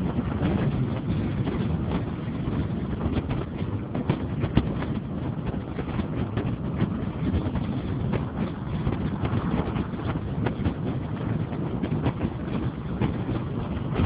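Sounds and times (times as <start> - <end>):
car engine and road noise: 0.0 - 14.0
wind buffeting microphone: 0.0 - 14.0.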